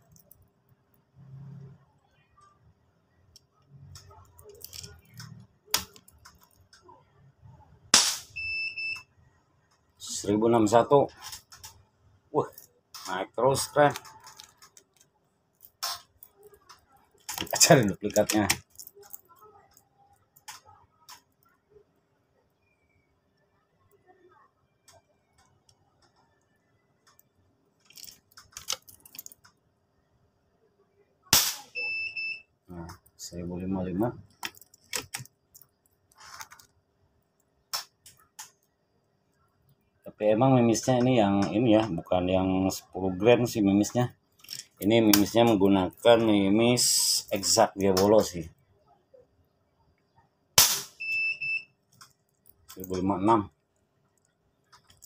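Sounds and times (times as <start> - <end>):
loud air rifle shot: 8.0 - 8.3, 31.4 - 31.6, 50.6 - 51.0
chronograph electronic beep: 8.4 - 9.1, 31.7 - 32.5, 51.0 - 51.8.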